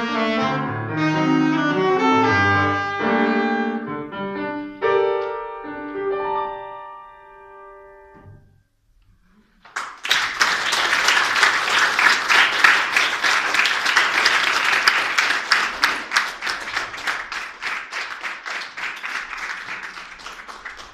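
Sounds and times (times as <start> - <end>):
audience applauding: 9.6 - 20.9.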